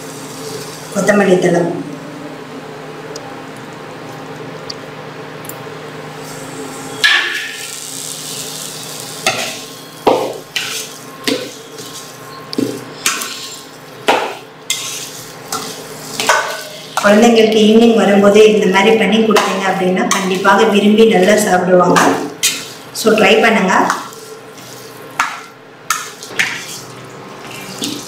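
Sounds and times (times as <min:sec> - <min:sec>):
spoon scraping a pan: 0:10.5 - 0:13.8, 0:14.7 - 0:17.2, 0:19.3 - 0:22.9, 0:23.8 - 0:28.0.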